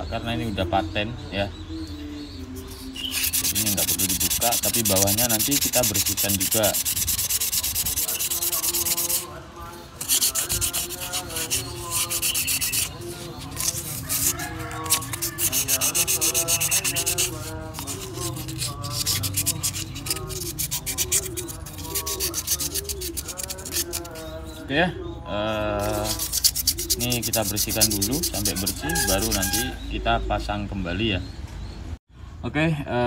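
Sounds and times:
sandpaper rasping on metal: 2.6 - 9.4, 10.0 - 24.6, 25.5 - 29.8.

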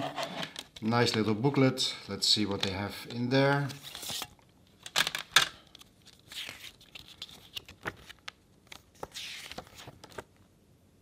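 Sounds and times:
paper booklet rustling: 3.5 - 4.3, 5.8 - 10.4.

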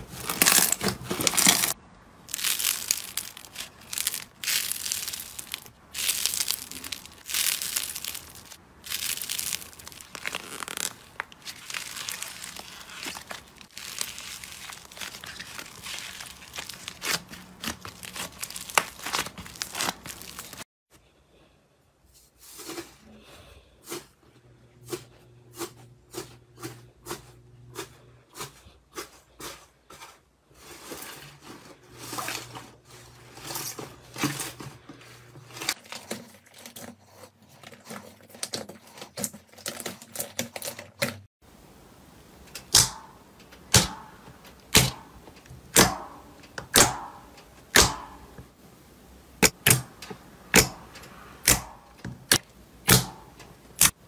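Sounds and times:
slime squishing: 0.0 - 20.6
slime clicks and crackles: 0.3 - 20.6
slime popping: 0.4 - 20.6.

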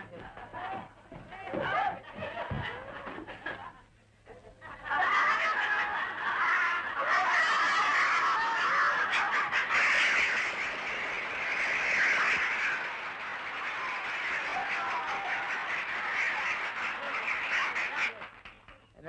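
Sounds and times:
audience shouting: 4.9 - 18.3
audience applauding: 4.9 - 18.8.

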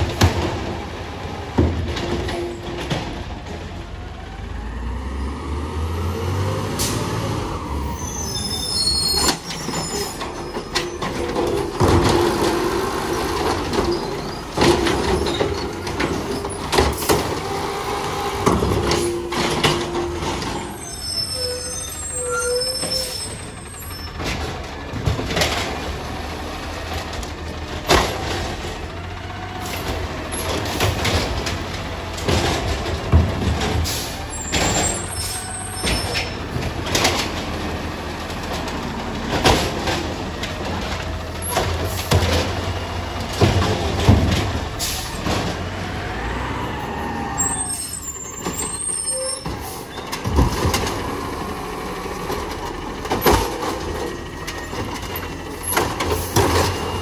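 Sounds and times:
knocks and bangs of bins: 0.0 - 3.7, 9.2 - 17.6, 26.8 - 29.0, 29.6 - 45.9, 49.4 - 51.6, 52.2 - 57.0
diesel engines running: 0.0 - 57.0.

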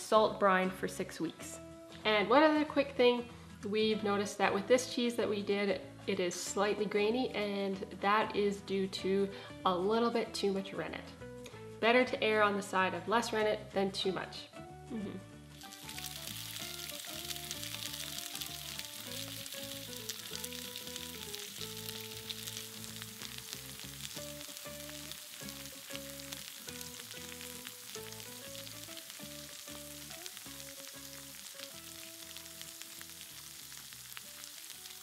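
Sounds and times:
background music slow held notes: 0.0 - 35.0
cheese sizzling in hot oil: 15.6 - 35.0.

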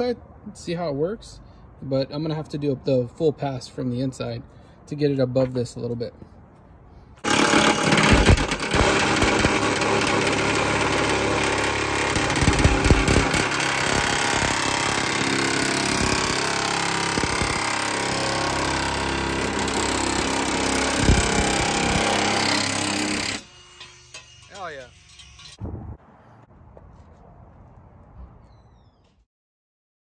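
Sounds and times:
grinder cutting sheet metal: 7.2 - 25.6.

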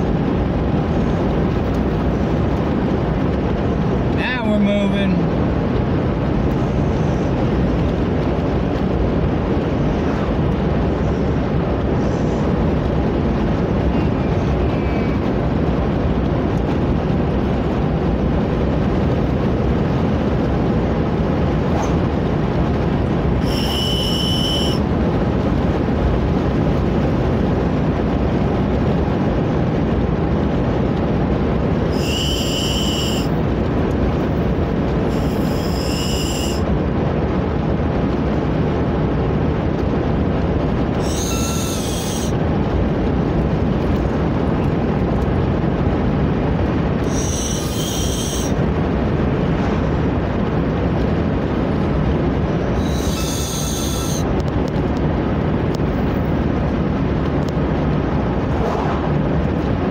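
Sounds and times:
car road and engine noise: 0.0 - 59.9
shrill whistle blasts: 23.4 - 24.8, 31.9 - 33.3, 35.1 - 36.6, 41.0 - 42.3, 47.0 - 48.6, 52.8 - 54.2.

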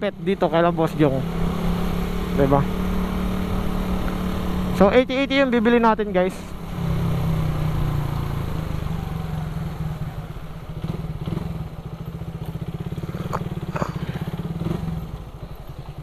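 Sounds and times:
motorcycle engine at low revs: 0.0 - 16.0.

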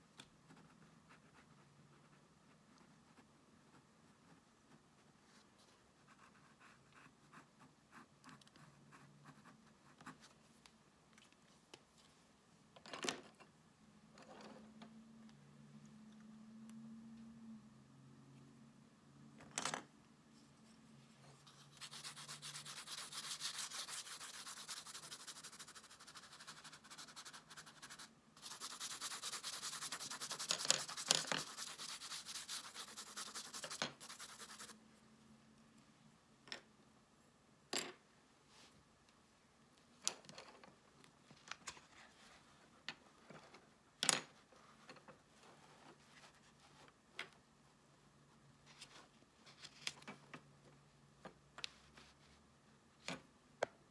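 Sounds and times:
pencil crayon scratching paper: 21.4 - 34.8.

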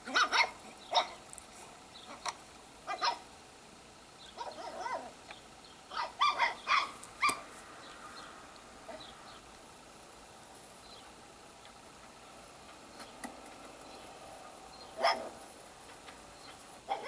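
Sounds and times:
dog yipping and barking: 0.0 - 1.2, 2.8 - 3.3, 4.4 - 5.2, 5.9 - 7.5, 15.0 - 15.4.

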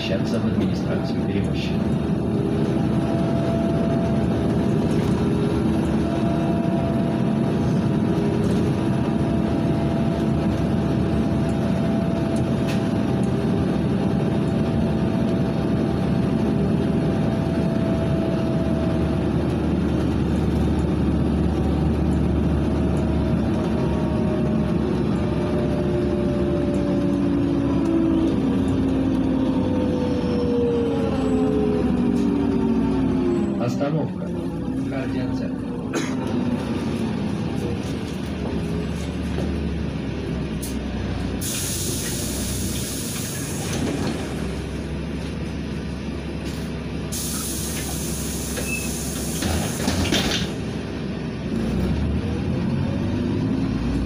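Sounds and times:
bus engine whining: 0.0 - 54.0
road noise: 0.0 - 54.0.

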